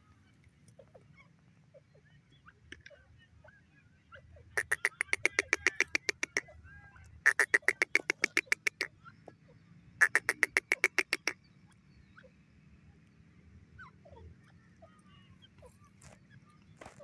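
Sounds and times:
francolin calling: 4.5s - 6.6s, 7.2s - 9.2s, 10.0s - 12.4s.

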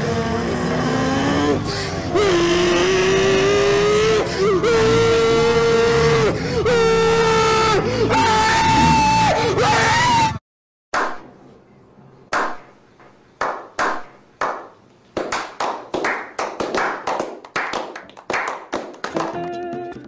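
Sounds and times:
men clapping slowly: 13.4s - 19.9s.

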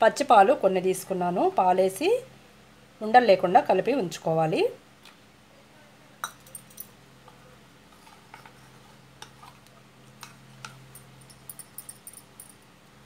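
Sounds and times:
faint steady hum: 0.0s - 13.0s
spoon clinking and scraping bowl: 10.2s - 12.6s.

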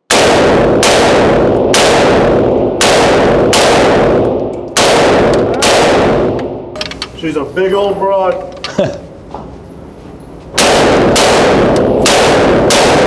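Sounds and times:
rifle automatic gunfire bursts: 0.1s - 4.2s, 10.6s - 13.0s.

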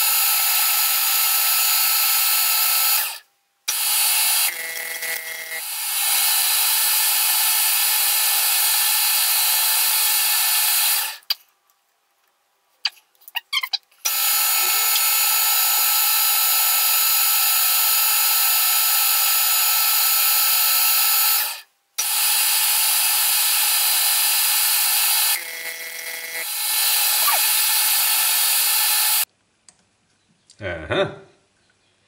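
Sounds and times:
metal lathe whirring: 21.3s - 29.3s.

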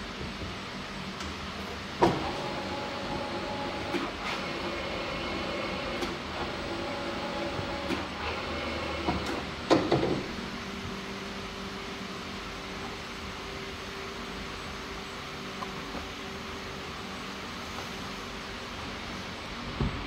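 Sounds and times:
dough press machine humming: 1.6s - 10.5s.

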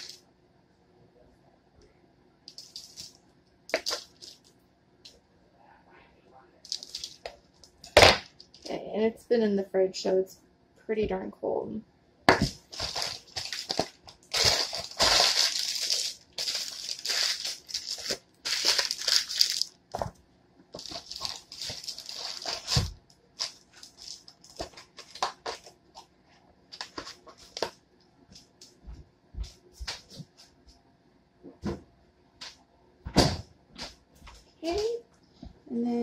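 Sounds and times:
hands rustling and crinkling: 6.7s - 8.8s, 12.5s - 20.2s, 20.8s - 28.8s.

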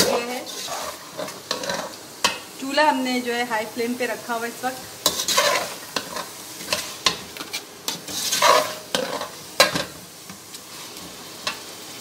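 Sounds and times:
metal spatula scraping: 0.0s - 2.4s, 5.0s - 10.0s
meat sizzling in a pot: 0.0s - 12.0s.

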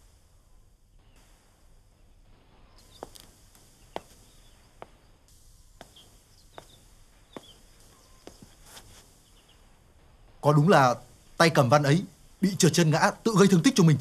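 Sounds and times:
background hiss: 0.0s - 14.0s
footsteps on tiled floor: 2.8s - 5.0s, 5.8s - 9.1s.

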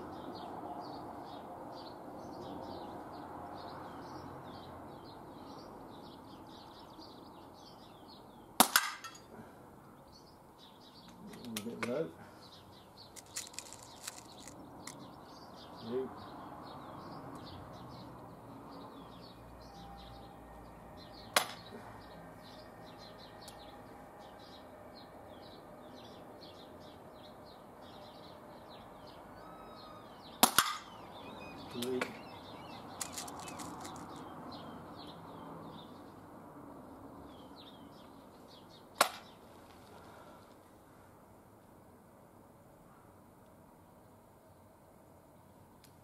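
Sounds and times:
air pistol shots: 8.6s - 9.2s, 30.4s - 30.9s.

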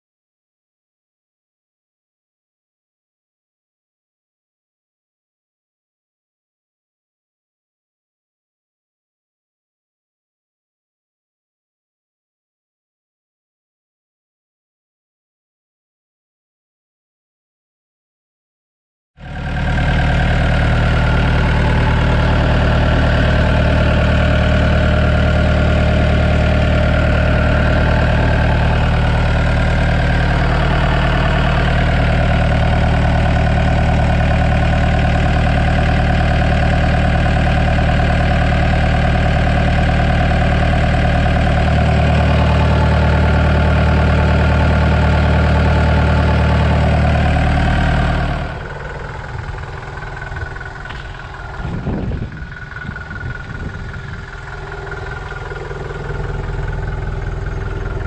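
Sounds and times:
diesel engine idling: 19.2s - 58.0s.

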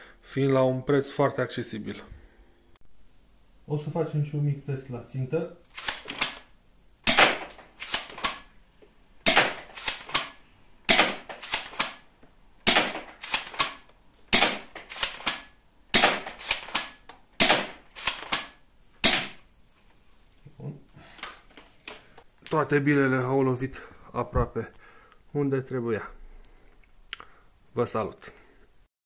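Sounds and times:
airsoft shotgun firing: 5.8s - 8.5s, 9.2s - 12.0s, 12.6s - 19.4s.

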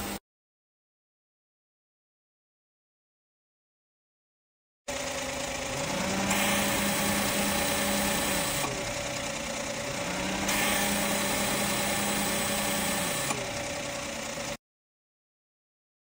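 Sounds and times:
car engine idling: 4.9s - 14.6s.

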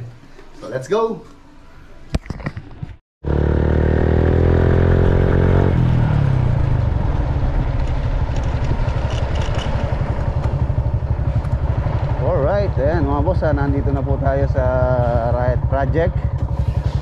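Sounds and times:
wind: 0.0s - 17.0s
motorcycle engine running: 3.2s - 17.0s
road rumble: 3.2s - 17.0s.

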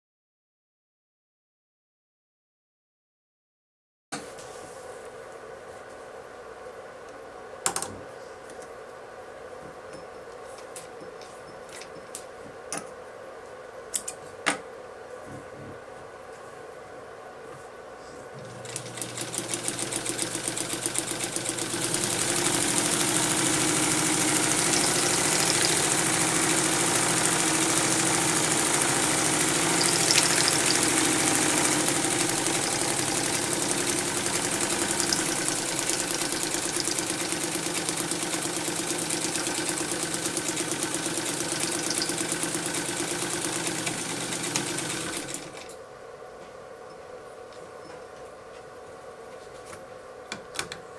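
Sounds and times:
sewing machine clattering: 18.6s - 45.6s.

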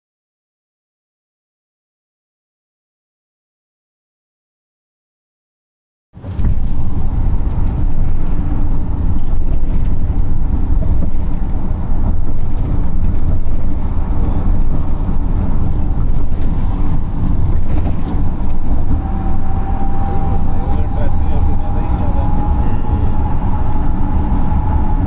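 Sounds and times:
car road noise from inside: 6.2s - 25.0s.

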